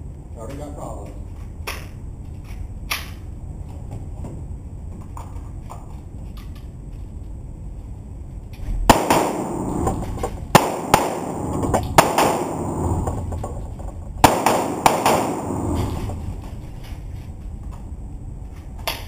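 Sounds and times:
pistol shots echoing indoors: 0:08.8 - 0:13.4, 0:14.2 - 0:16.5.

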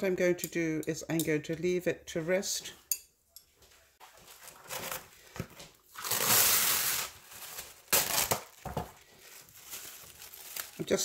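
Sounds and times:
plastic wrap crinkling: 0:04.0 - 0:11.0.

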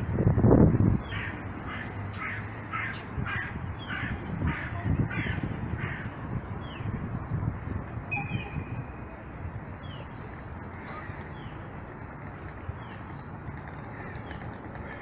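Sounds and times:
low street noise: 0:00.0 - 0:15.0.

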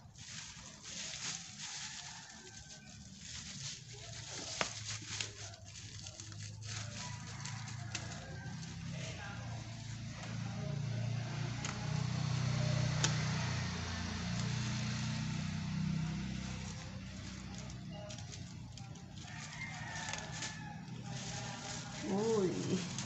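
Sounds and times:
plastic bag crinkling: 0:00.0 - 0:08.5, 0:16.4 - 0:23.0
faint rooster crow: 0:01.6 - 0:03.2, 0:06.8 - 0:09.5, 0:18.8 - 0:23.0
low motor hum: 0:08.0 - 0:19.3, 0:20.3 - 0:23.0.

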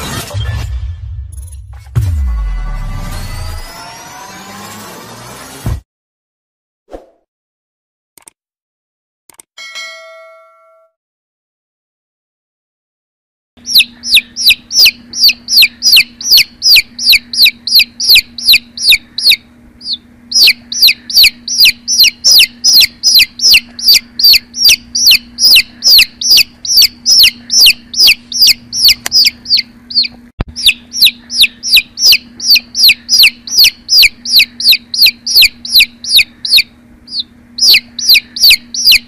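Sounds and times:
sharp click: 0:08.2 - 0:08.4, 0:09.3 - 0:09.5, 0:28.9 - 0:29.3
baby chick peeping: 0:13.6 - 0:39.0.

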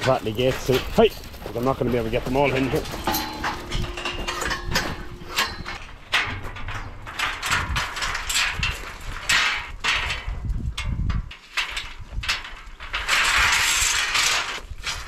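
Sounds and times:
sheep shuffling: 0:00.0 - 0:05.8
metal hurdles rattling and clanking: 0:00.0 - 0:15.0.

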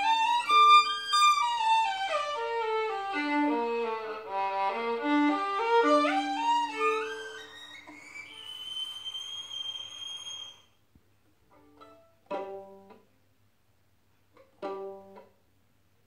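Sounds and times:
violin holding high note: 0:00.0 - 0:10.6
plucked pizzicato chords: 0:11.5 - 0:13.2, 0:14.4 - 0:15.5.

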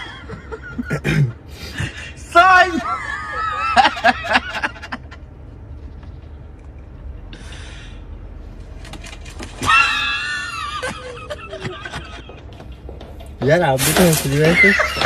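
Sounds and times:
person screaming: 0:09.6 - 0:10.7.

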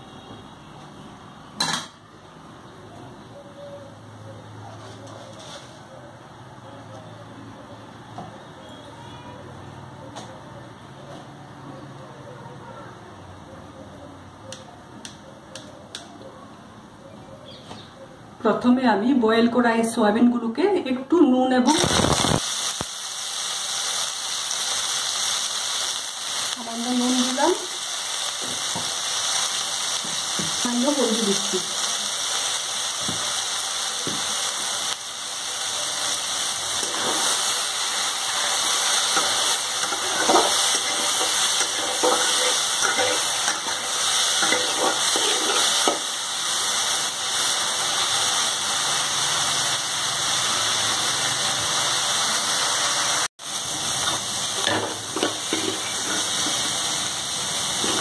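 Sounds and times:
food sizzling in oil: 0:21.7 - 0:58.0
spatula scraping metal pan: 0:39.2 - 0:46.0, 0:54.6 - 0:56.7.

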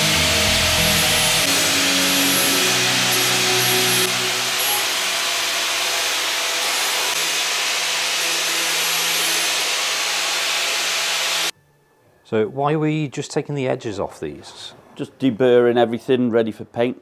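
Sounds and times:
handheld power tool running: 0:00.0 - 0:11.5.

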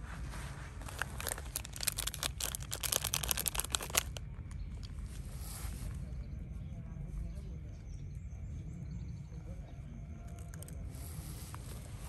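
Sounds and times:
foil wrapper crinkling and tearing: 0:00.8 - 0:05.0.

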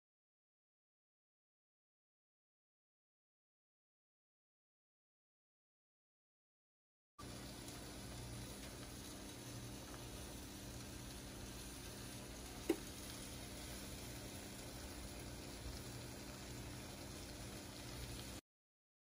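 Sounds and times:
sauce sizzling in a skillet: 0:07.2 - 0:18.4.

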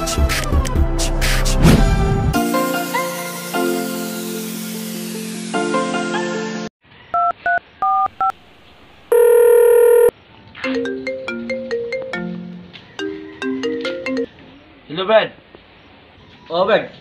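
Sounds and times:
phone keypad beeps: 0:07.2 - 0:08.3, 0:09.1 - 0:10.1
phone ringing tone: 0:07.2 - 0:08.3, 0:09.1 - 0:10.1
mobile phone melodic ringtone: 0:09.1 - 0:10.1.

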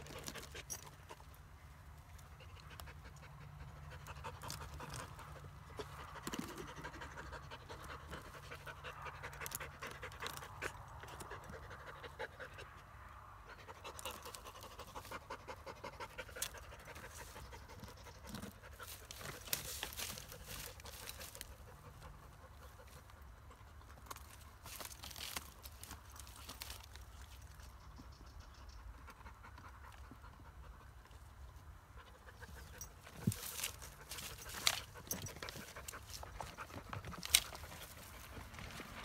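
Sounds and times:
dog panting rapidly: 0:02.4 - 0:12.8
small clicks and crackles: 0:23.8 - 0:28.0, 0:32.5 - 0:39.0.

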